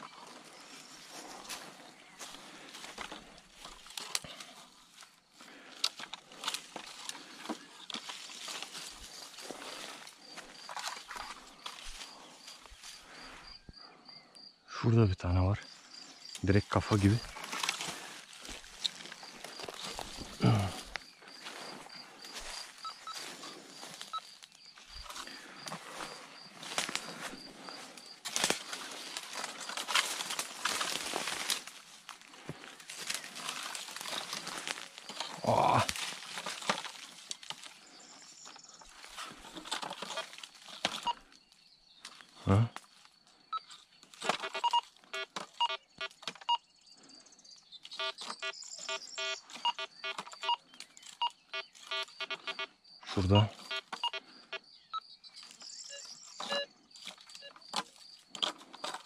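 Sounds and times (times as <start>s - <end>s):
footsteps crunching dry leaves: 0.0s - 13.3s, 17.0s - 41.4s
twigs snapping: 2.2s - 12.1s, 17.3s - 21.6s, 26.6s - 37.9s
metal detector beeps: 22.8s - 24.4s, 43.5s - 46.7s, 47.9s - 55.0s, 55.6s - 56.8s, 57.4s - 57.7s.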